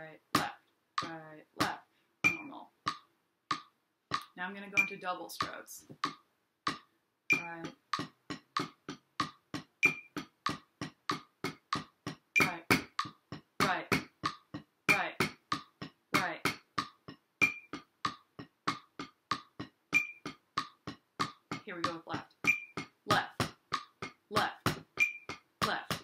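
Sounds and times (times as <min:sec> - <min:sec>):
drumsticks on practice pad: 0:00.4 - 0:26.0
metronome beeps: 0:02.2 - 0:03.0, 0:04.8 - 0:06.2, 0:07.3 - 0:07.8, 0:09.8 - 0:10.2, 0:12.4 - 0:13.1, 0:17.4 - 0:17.8, 0:19.9 - 0:20.4, 0:21.8 - 0:22.9, 0:25.0 - 0:25.4.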